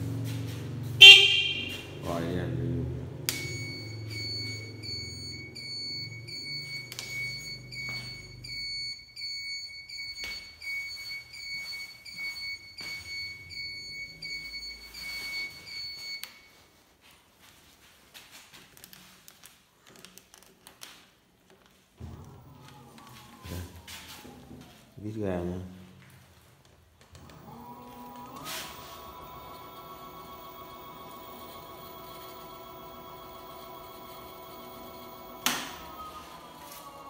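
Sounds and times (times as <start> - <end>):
turn-signal buzzer beeping: 1.0 - 2.0, 3.3 - 10.3.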